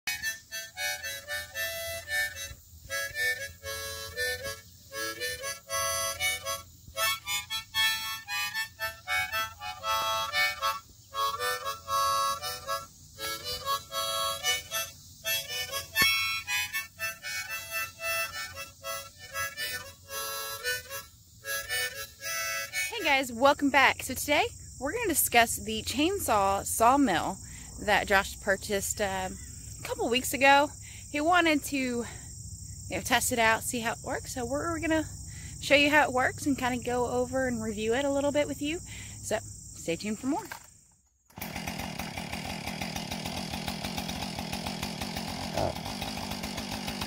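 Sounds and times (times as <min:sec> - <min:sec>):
harmonica playing a tune: 0:00.1 - 0:23.9.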